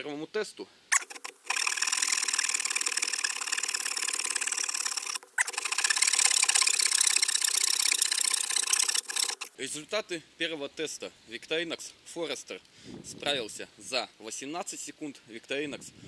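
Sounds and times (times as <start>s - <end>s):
saw blade rasping through wood: 0.9s - 9.5s.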